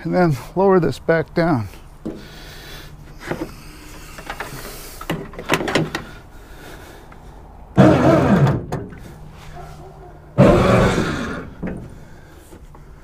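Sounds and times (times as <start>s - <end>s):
metal parts knocking and clanking: 4.2s - 6.1s
loud rough noise: 7.8s - 8.7s, 10.4s - 11.6s.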